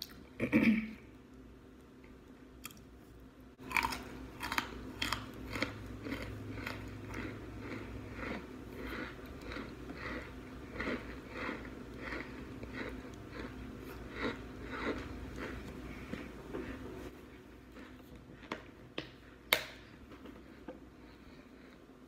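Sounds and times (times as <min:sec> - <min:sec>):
crunchy chewing close up: 0:03.6 - 0:16.2.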